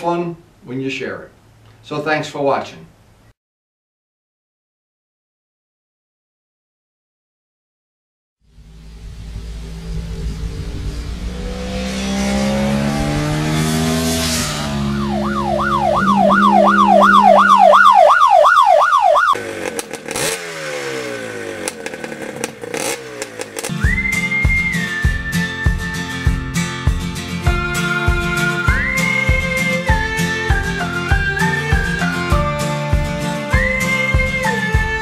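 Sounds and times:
rising and falling whine: 0:08.4 - 0:26.5
motorcycle engine accelerating: 0:08.4 - 0:27.7
tones sliding downward: 0:08.6 - 0:19.4.

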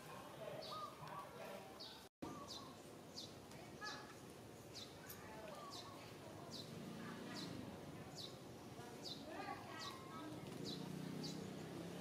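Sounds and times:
softer lower bird calls: 0:00.6 - 0:06.7.

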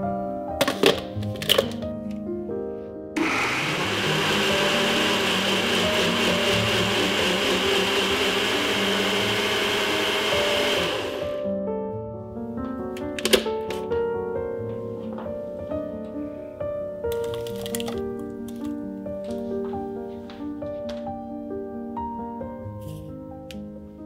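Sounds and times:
blender motor grinding: 0:03.2 - 0:11.4.

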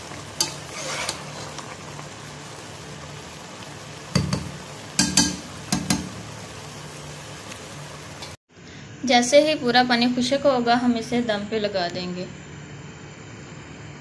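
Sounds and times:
faint steady sizzle: 0:00.0 - 0:14.0
spatula scraping rice in a pan: 0:00.4 - 0:01.7
spatula knocking against pan: 0:04.1 - 0:06.1.

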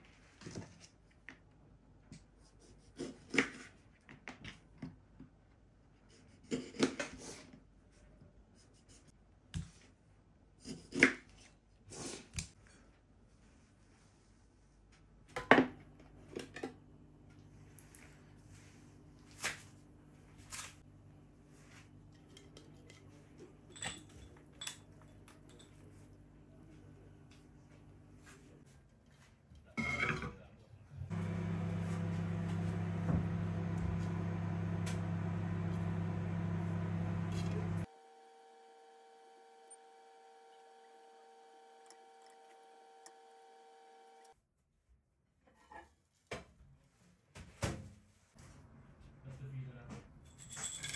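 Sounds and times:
kitchenware knocking and clinking: 0:29.8 - 0:30.4.

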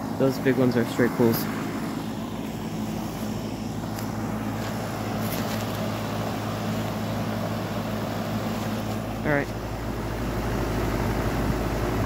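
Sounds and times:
heat pump humming: 0:00.0 - 0:12.0.

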